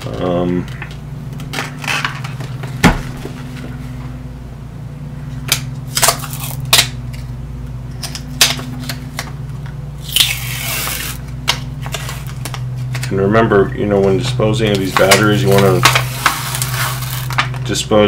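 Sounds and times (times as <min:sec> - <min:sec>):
steady low hum: 0:00.0 - 0:18.0
cardboard rustle: 0:14.8 - 0:17.6.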